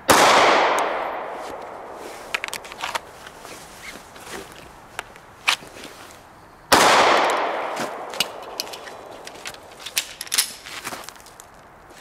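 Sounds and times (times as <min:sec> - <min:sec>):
pistol shot: 0:00.1 - 0:01.4, 0:06.7 - 0:08.1.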